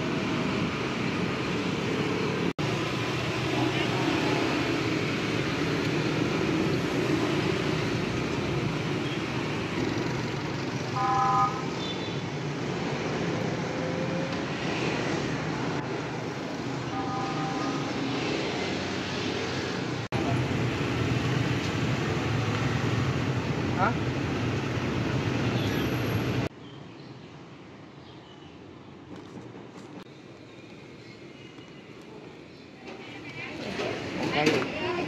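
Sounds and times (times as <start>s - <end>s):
motorbikes passing: 0.0s - 26.5s
horn toots: 11.0s - 12.2s.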